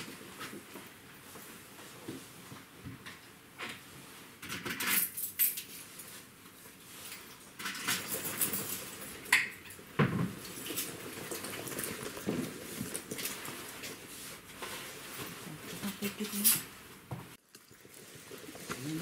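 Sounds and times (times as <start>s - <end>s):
kitchenware clinking and clattering: 4.4s - 6.1s, 7.0s - 13.9s, 15.7s - 16.7s.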